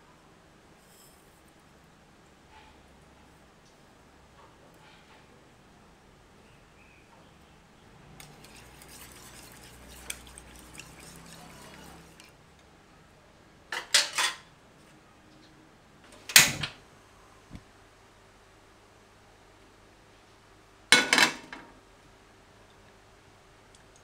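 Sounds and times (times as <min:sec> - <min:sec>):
utensil stirring in ceramic bowl: 0:08.2 - 0:12.4.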